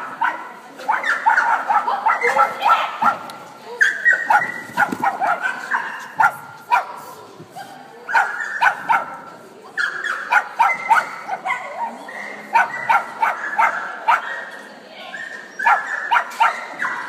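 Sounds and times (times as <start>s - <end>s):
dog barking: 0.0s - 3.2s, 3.8s - 7.0s, 8.1s - 9.2s, 9.8s - 11.7s, 12.5s - 14.5s, 15.6s - 17.0s.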